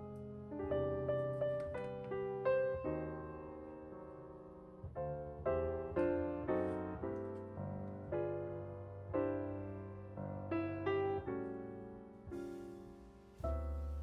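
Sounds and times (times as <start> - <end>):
piano music: 0.0 - 14.0.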